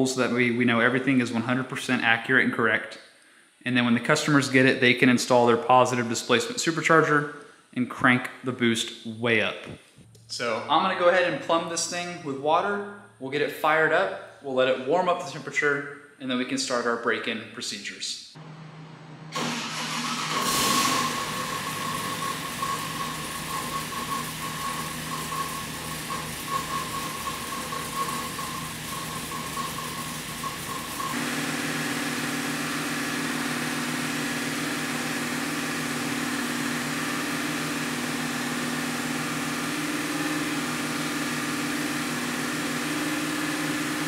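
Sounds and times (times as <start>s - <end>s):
engine starting and idling: 18.4s - 36.2s.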